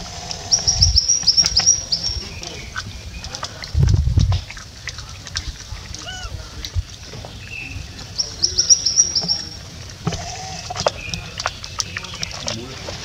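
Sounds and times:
short lower animal calls: 0:00.0 - 0:02.8, 0:06.0 - 0:06.6, 0:07.5 - 0:11.2
small animal high chirps: 0:08.2 - 0:09.6.

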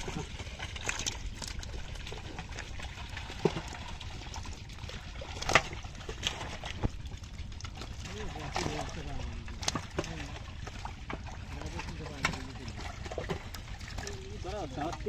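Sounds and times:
sharp water slaps: 0:05.2 - 0:07.0, 0:08.0 - 0:10.2.

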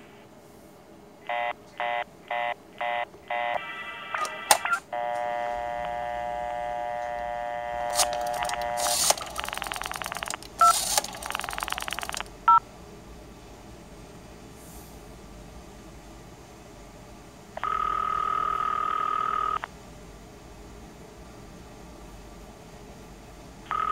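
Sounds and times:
dial tone: 0:01.3 - 0:12.6, 0:17.6 - 0:19.6, 0:23.7 - 0:23.9
sharp clicks on phone line: 0:03.4 - 0:06.0, 0:07.0 - 0:12.3
rotary dial pulses clicking: 0:04.2 - 0:05.3, 0:07.0 - 0:12.3
short telephone beeps: 0:07.8 - 0:12.6.

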